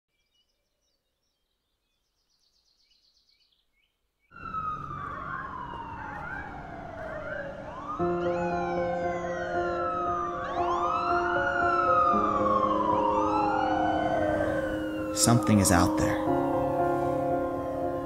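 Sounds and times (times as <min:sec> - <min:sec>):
city noise: 0:04.4 - 0:18.0
siren wailing: 0:04.4 - 0:18.0
sustained music chord: 0:07.6 - 0:18.0.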